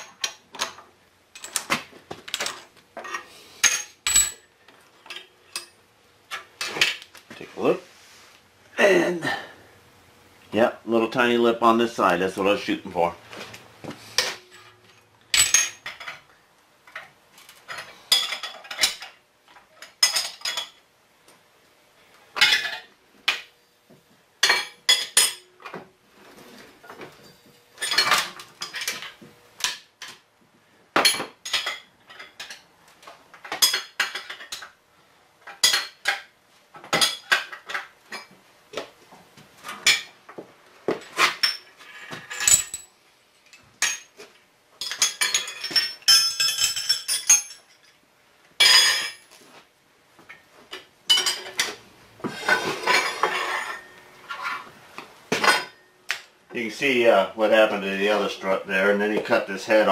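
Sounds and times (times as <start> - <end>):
metal tools clinking on table: 2.3 - 5.8, 14.2 - 16.2, 27.2 - 30.2, 31.0 - 32.6, 41.0 - 44.2, 44.8 - 48.0, 48.6 - 49.3, 51.1 - 51.8, 52.4 - 54.7.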